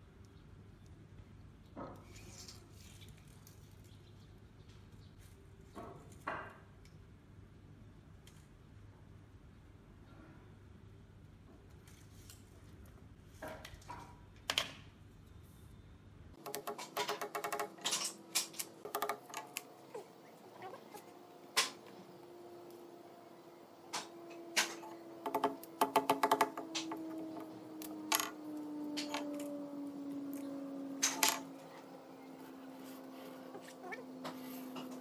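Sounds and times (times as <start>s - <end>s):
faint steady hum: 15.0s - 35.0s
tape measure rattling on wood: 16.4s - 20.0s.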